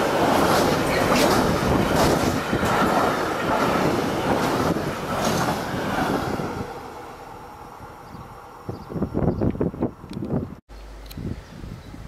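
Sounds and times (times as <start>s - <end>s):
freight train wheels clattering: 0.0s - 6.7s.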